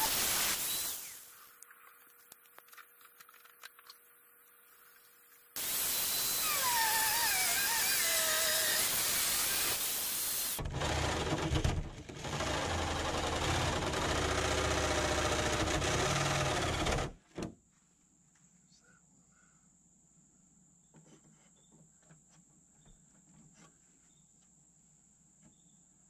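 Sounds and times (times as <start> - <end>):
rotary tool grinding sheet steel: 0.0 - 1.3, 5.6 - 10.6.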